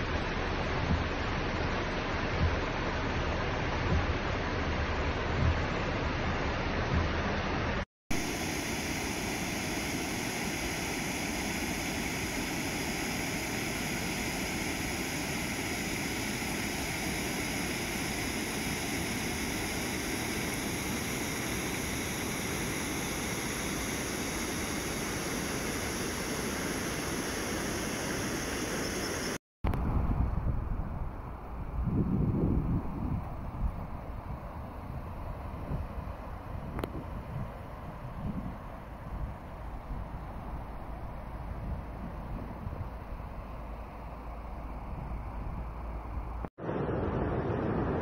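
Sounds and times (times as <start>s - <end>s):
water rushing over weir: 0.0s - 29.4s
wind buffeting microphone: 29.7s - 46.5s.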